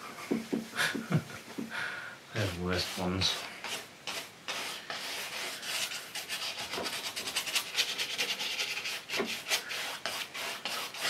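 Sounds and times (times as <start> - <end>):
paintbrush scratching on canvas: 2.4 - 11.0.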